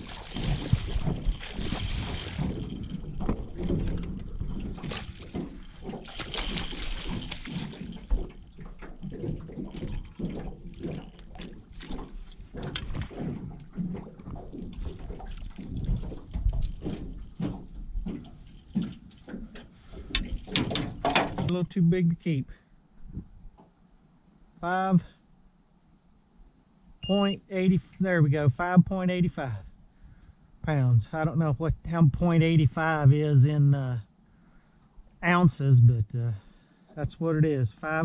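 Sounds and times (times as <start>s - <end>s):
fish splashing at water surface: 0.0s - 16.2s
knocks and thumps: 0.0s - 21.5s
sloshing water: 0.0s - 21.5s.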